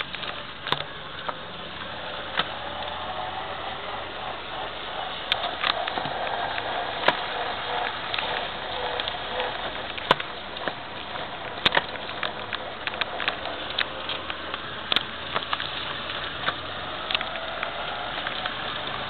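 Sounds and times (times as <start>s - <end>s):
car engine running: 0.0s - 19.0s
tyres hissing on wet road: 0.0s - 19.0s
sharp clicks: 5.0s - 19.0s.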